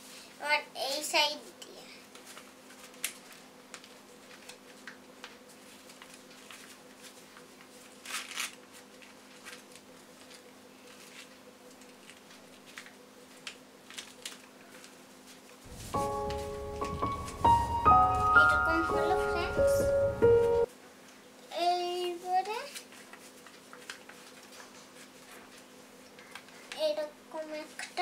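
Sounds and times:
paper rustling: 2.1 - 19.6, 22.6 - 26.8
music: 15.7 - 20.7.

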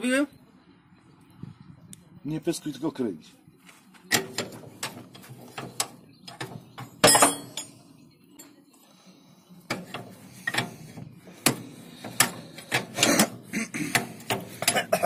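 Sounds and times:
loud metal clank: 4.1 - 7.7
spanner clinking on metal: 4.1 - 7.8, 11.4 - 15.0.

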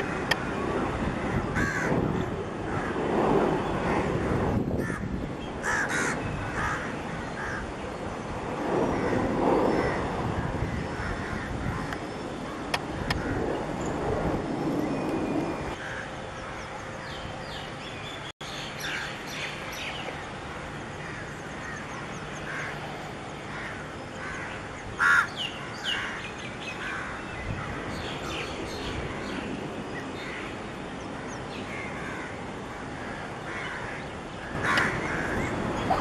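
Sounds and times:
birds calling: 0.0 - 36.0
crows cawing: 1.2 - 2.1, 2.7 - 3.0, 4.0 - 7.7, 10.6 - 12.0, 15.8 - 16.2, 22.5 - 22.8, 23.5 - 27.8, 31.7 - 36.0.

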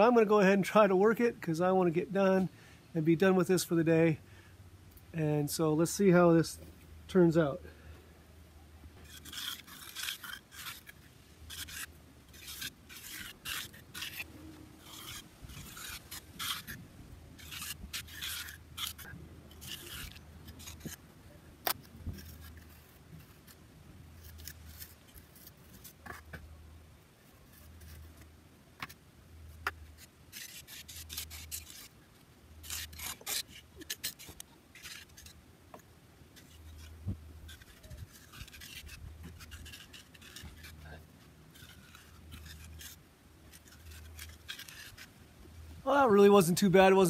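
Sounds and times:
trowel scraping wet concrete: 9.0 - 16.8, 17.4 - 21.0, 21.6 - 23.6, 29.6 - 32.0, 32.6 - 35.4, 36.4 - 45.1.

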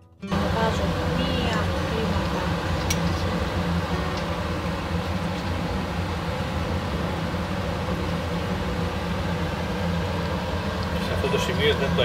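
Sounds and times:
low hum: 0.3 - 12.0
meat sizzling in pot: 0.4 - 12.0.

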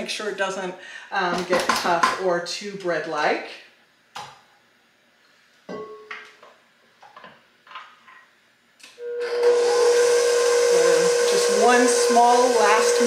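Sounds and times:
stand mixer motor whine: 9.0 - 13.0.

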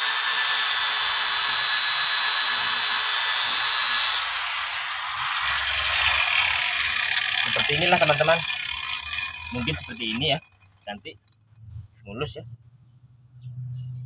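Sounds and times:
angle grinder sanding metal: 0.0 - 11.2.

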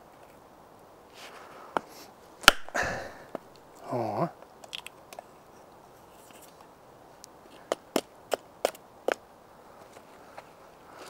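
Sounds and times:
wood splitting crackle: 1.4 - 3.8, 4.5 - 5.2.

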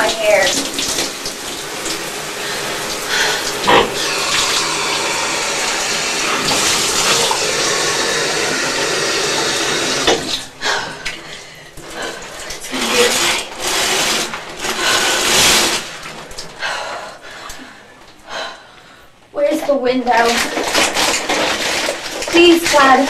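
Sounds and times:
shower water spraying: 0.0 - 10.6, 11.8 - 16.5, 20.1 - 23.0.

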